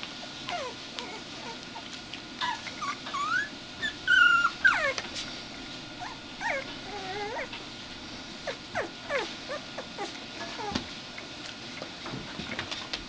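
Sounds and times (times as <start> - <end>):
puppies yipping and whining: 0.4 - 5.2, 5.9 - 7.6, 8.4 - 10.9
puppy yelping: 0.5 - 1.8, 2.4 - 5.1, 6.0 - 7.5, 8.4 - 10.8.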